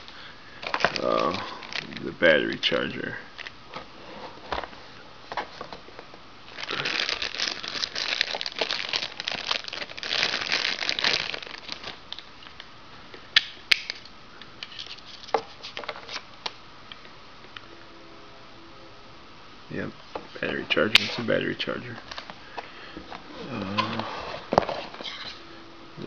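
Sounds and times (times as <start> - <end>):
plastic bag crinkling: 0.6 - 2.7, 6.5 - 12.2.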